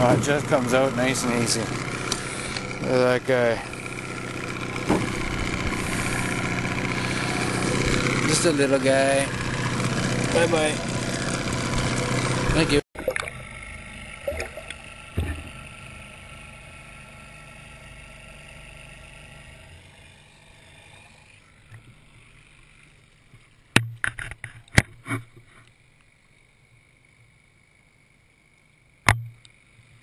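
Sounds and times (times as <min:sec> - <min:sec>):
sharp knocks: 0:04.8 - 0:05.2, 0:15.1 - 0:15.6.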